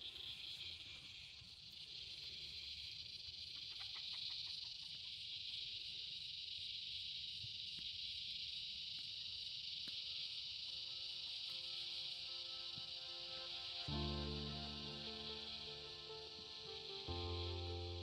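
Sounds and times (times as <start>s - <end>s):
insects chirping: 0.0s - 18.0s.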